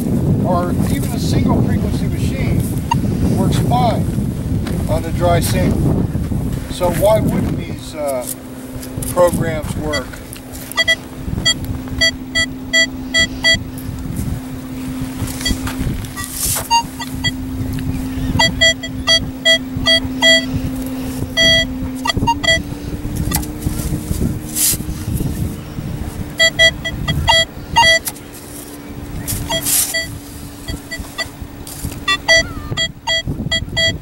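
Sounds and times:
metal detector low tone: 9.3 - 24.2, 26.3 - 34.0
short beeps: 9.9 - 13.7, 15.4 - 17.6, 18.2 - 20.6, 21.2 - 22.7, 26.4 - 28.1, 29.4 - 31.4, 32.0 - 34.0
scoop scraping dry sand: 23.7 - 25.3, 28.0 - 30.5.

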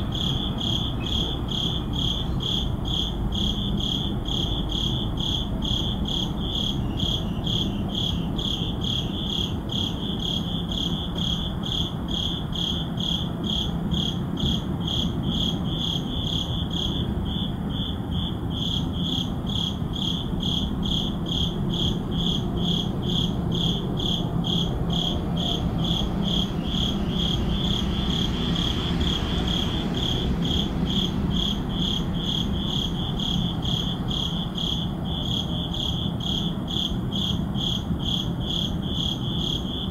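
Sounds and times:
crickets chirping: 0.0 - 39.9
low city hum: 0.0 - 39.9.

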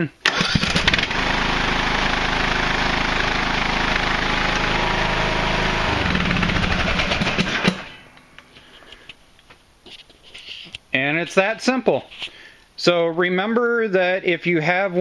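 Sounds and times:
lawn tractor engine running: 0.2 - 8.2.

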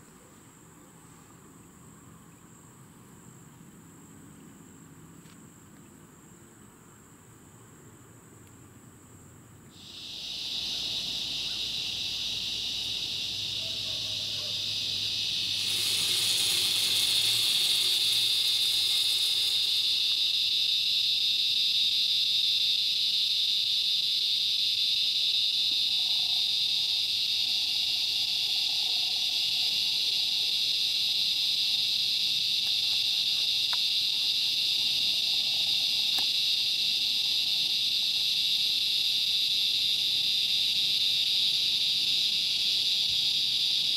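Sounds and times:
insects buzzing: 0.0 - 43.9
rushing hiss: 9.8 - 43.9.

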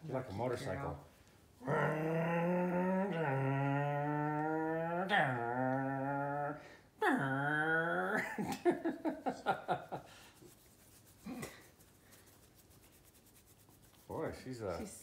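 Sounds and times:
puppy whining and grumbling: 1.6 - 8.2.

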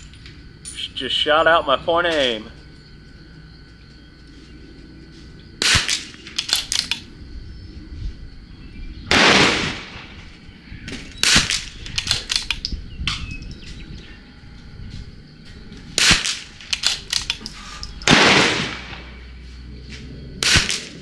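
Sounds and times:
rifle shots: 5.6 - 7.0, 9.1 - 10.2, 11.2 - 12.7, 15.9 - 17.4, 18.0 - 19.2, 20.4 - 21.0
rifle bolt clicks: 6.4 - 7.0, 11.5 - 12.7, 16.7 - 17.6.

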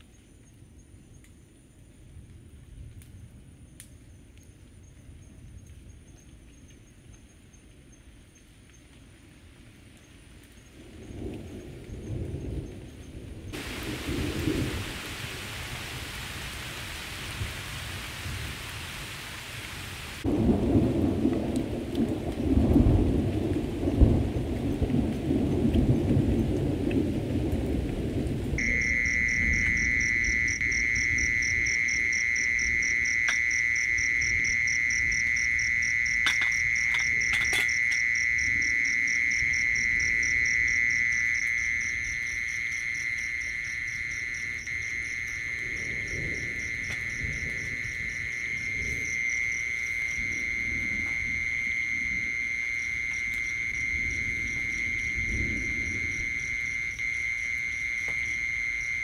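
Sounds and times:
rain falling: 0.0 - 59.0
crickets trilling: 2.6 - 59.0
low rolling thunder: 10.7 - 18.8, 20.2 - 42.6, 43.3 - 57.3.

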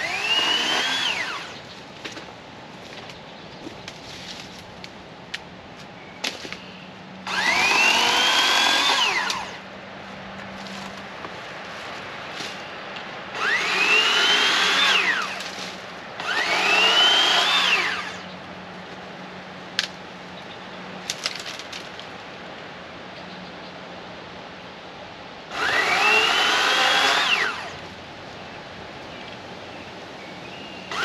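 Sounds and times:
electric chainsaw motor whining: 0.0 - 1.6, 7.2 - 9.6, 13.3 - 15.6, 16.2 - 18.2, 25.5 - 27.8.

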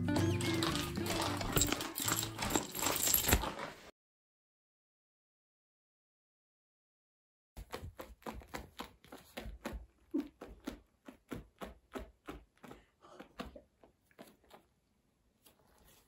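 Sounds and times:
claws clicking on woven mat: 7.6 - 15.9.

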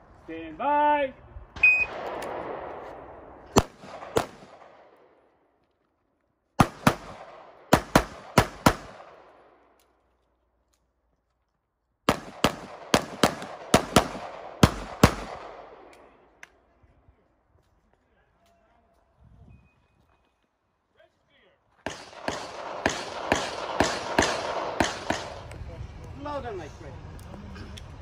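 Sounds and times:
pistol shots echoing: 1.8 - 5.2, 6.6 - 9.8, 12.1 - 16.3, 21.8 - 25.5.

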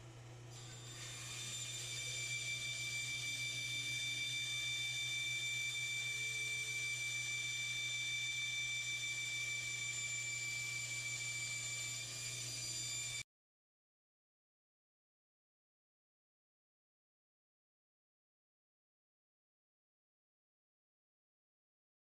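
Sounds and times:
bandsaw motor hum: 0.0 - 13.2
high whine of saw blade: 0.0 - 13.2.

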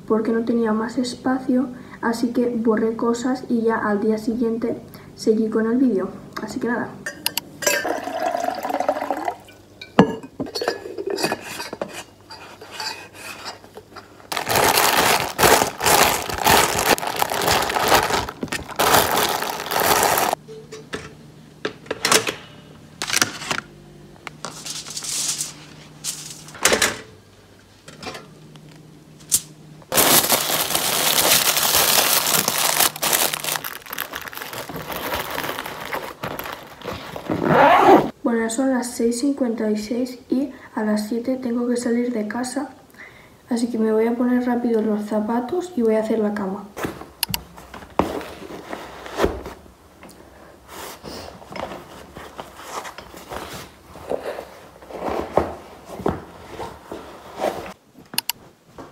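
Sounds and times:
water poured into plastic cup: 7.8 - 9.5
dishes and utensils clinking: 9.8 - 14.1
aluminium foil crinkling: 14.3 - 20.4, 24.5 - 26.6, 29.9 - 37.4.

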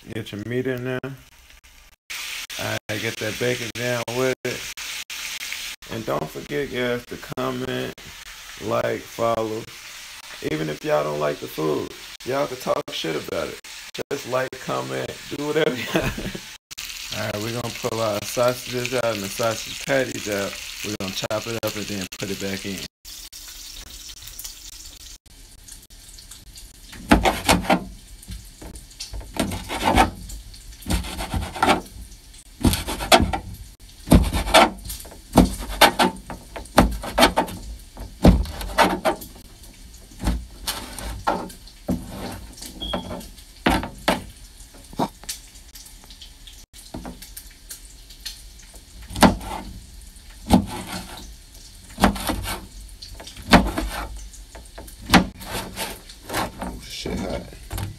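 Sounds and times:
knife chopping on plastic board: 32.6 - 33.4, 34.1 - 34.8, 49.1 - 49.6.

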